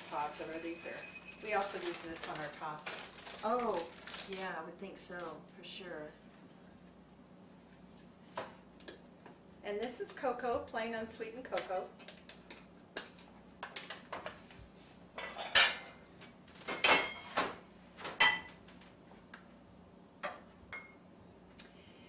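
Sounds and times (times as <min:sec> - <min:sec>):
metal utensils and dishes clinking: 0:00.0 - 0:02.5, 0:15.2 - 0:16.0.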